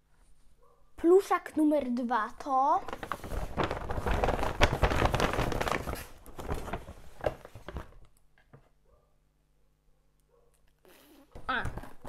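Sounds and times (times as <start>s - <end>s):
paper bag rustling: 2.8s - 8.1s.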